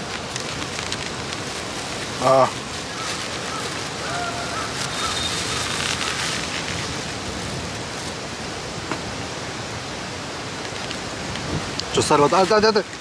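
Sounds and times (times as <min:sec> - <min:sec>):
rushing outdoor noise: 0:00.0 - 0:13.0.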